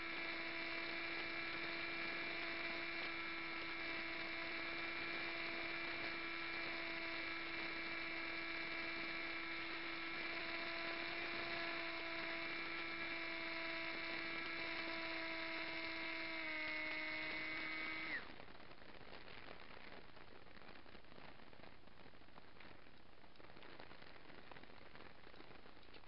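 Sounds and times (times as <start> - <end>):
propeller motor whine: 0.0 - 18.3.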